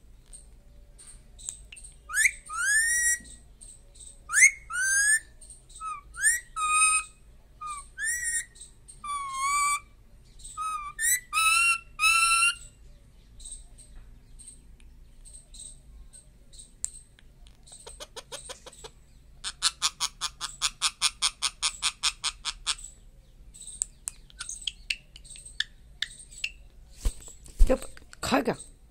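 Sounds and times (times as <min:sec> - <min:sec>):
parakeet whistled calls: 0:02.1 - 0:03.4, 0:04.3 - 0:09.8, 0:10.6 - 0:12.7
parakeet rattling chatter: 0:17.6 - 0:23.0.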